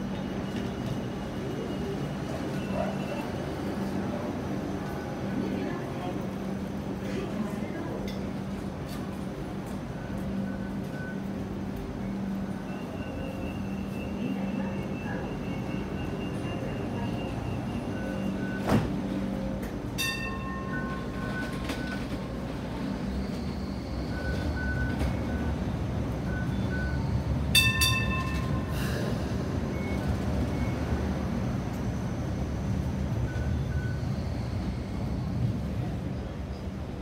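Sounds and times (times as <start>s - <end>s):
train rumbling past: 0.0s - 37.0s
bell-like warning signal: 9.9s - 31.2s, 33.2s - 34.6s.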